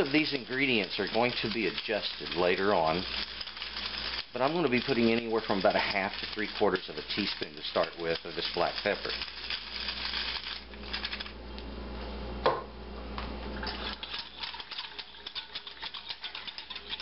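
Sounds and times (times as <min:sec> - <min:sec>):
whisk clicking against saucepan: 0:00.0 - 0:10.3, 0:13.7 - 0:17.0
whisk clinking on metal pan: 0:00.0 - 0:11.2, 0:13.7 - 0:17.0.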